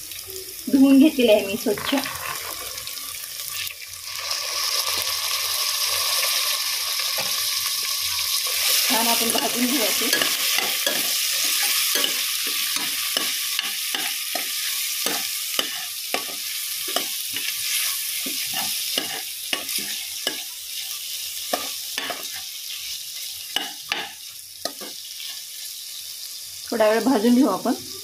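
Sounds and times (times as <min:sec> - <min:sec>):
food sizzling in oil: 0:00.0 - 0:28.0
spoon scraping and clinking pot: 0:09.3 - 0:20.5.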